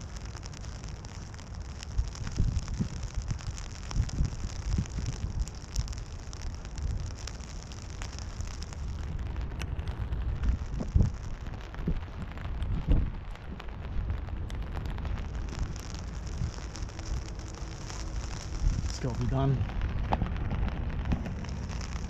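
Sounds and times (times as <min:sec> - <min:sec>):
heavy rain falling: 0:00.0 - 0:22.0
raindrops tapping on umbrella: 0:00.0 - 0:22.0
wind buffeting microphone: 0:00.0 - 0:22.0.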